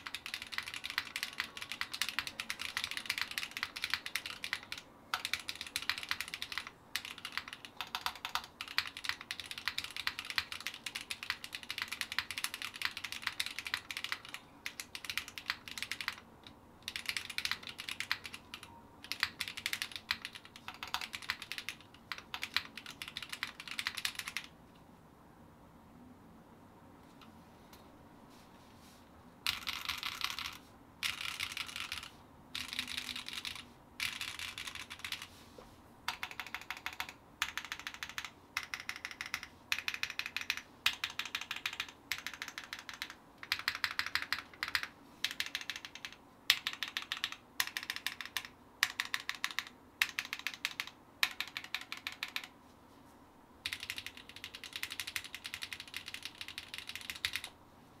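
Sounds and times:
mechanical keyboard typing: 0.0 - 24.5, 29.4 - 35.3, 36.1 - 52.5, 53.6 - 57.6.

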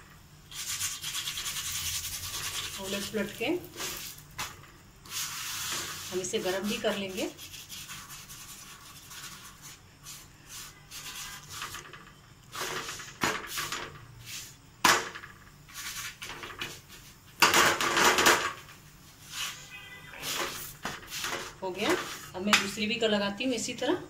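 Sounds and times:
brush rubbing on flatbread: 0.5 - 11.9, 12.5 - 14.6, 15.7 - 17.4, 19.0 - 22.3.

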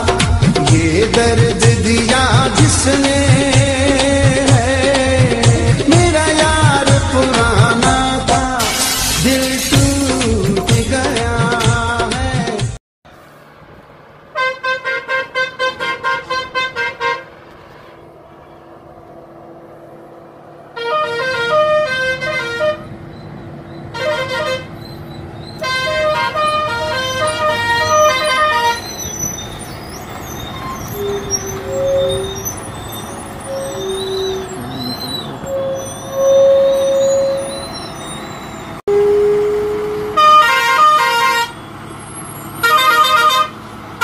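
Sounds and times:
vehicle horn tooting: 14.3 - 17.4, 20.8 - 22.9, 23.9 - 24.8, 25.6 - 29.0, 30.6 - 34.6, 35.4 - 37.9, 38.9 - 41.8, 42.6 - 43.6.

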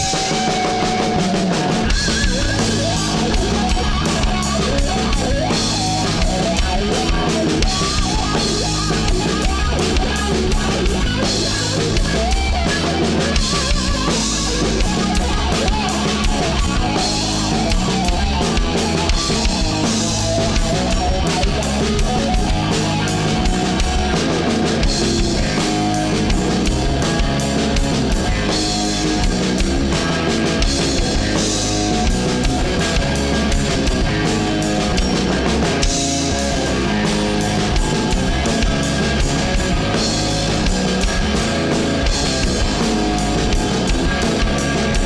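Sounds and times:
drum kit: 0.0 - 45.0
electric bass: 0.0 - 45.0
electric guitar: 0.0 - 45.0.

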